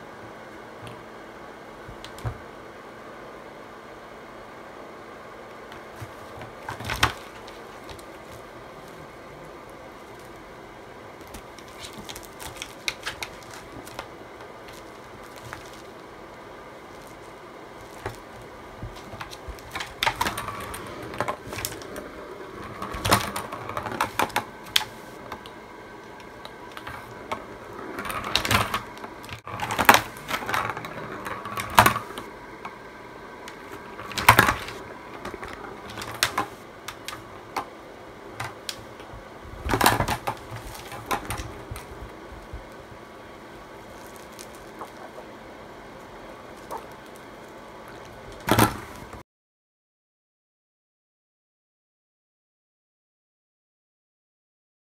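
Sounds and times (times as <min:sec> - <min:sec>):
plastic balls clattering in track: 0:16.9 - 0:32.3, 0:33.4 - 0:37.8, 0:38.4 - 0:42.8.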